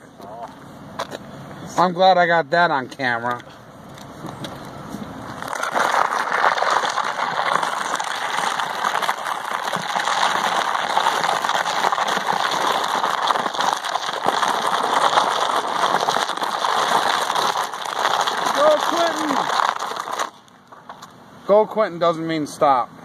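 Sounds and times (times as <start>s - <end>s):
trash can scraping on asphalt: 3.4s - 21.1s.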